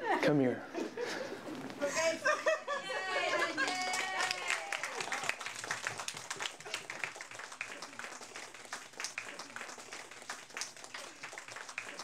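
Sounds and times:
children clapping: 0:03.6 - 0:12.0.

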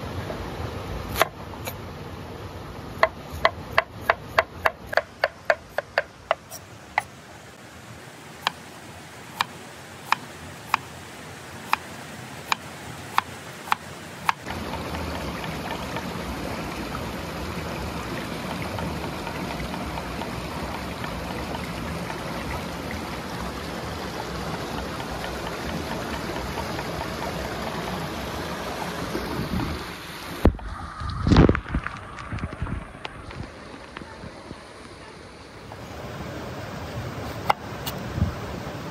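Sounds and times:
stream and waterfall rushing: 0:00.0 - 0:38.9
cleaver chopping on wooden board: 0:01.1 - 0:01.4, 0:03.0 - 0:07.1, 0:12.5 - 0:14.4.

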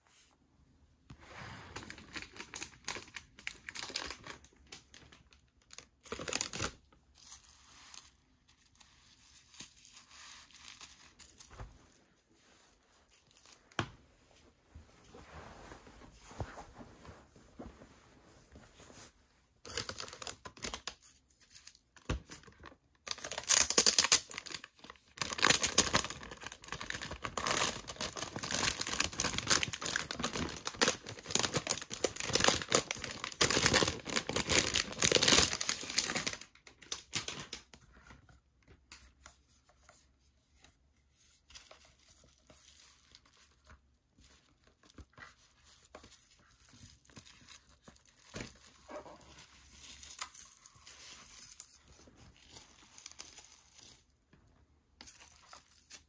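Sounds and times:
faint handling sounds: 0:00.0 - 0:22.0
plastic shrink-wrap crinkling and tearing: 0:01.7 - 0:11.6, 0:19.6 - 0:37.8, 0:46.3 - 0:54.1
plastic rustles: 0:23.0 - 0:38.1.

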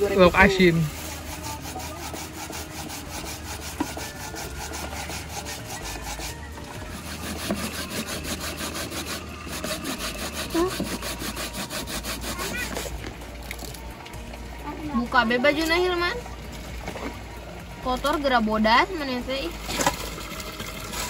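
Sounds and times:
hand grater rasping: 0:00.4 - 0:12.9.

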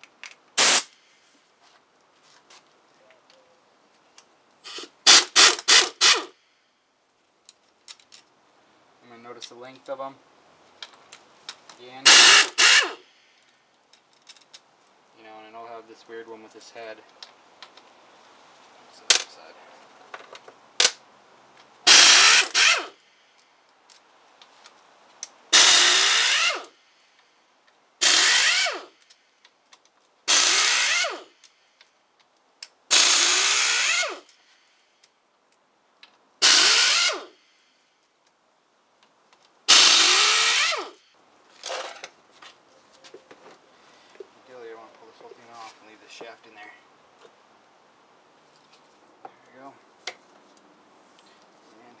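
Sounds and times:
power driver spinning bolts: 0:21.9 - 0:22.9, 0:28.0 - 0:28.8, 0:36.4 - 0:37.3.

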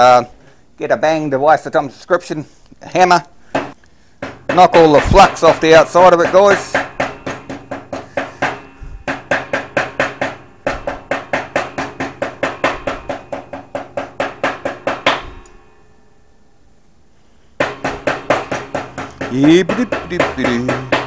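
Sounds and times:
hammer tapping on steel rod: 0:03.6 - 0:15.6, 0:17.6 - 0:21.0.

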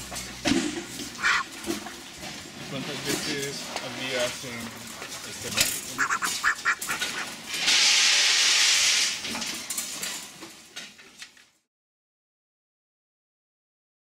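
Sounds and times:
ducks calling: 0:01.1 - 0:01.7, 0:05.9 - 0:07.5
loud steady hiss: 0:06.0 - 0:09.4.

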